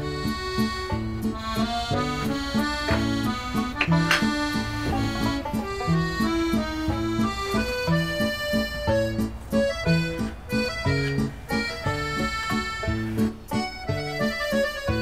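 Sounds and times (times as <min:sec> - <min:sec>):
solo accordion tune: 0:00.0 - 0:15.0.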